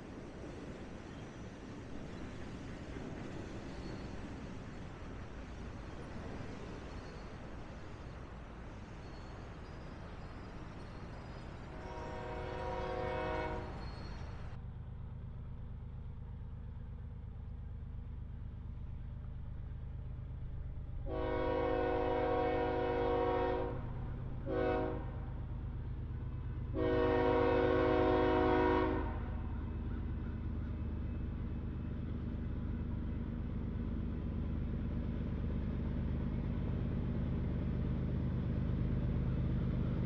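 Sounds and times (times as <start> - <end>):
train rumbling past: 0.0 - 40.0
locomotive horn: 11.6 - 14.6, 21.0 - 25.3, 26.7 - 29.6.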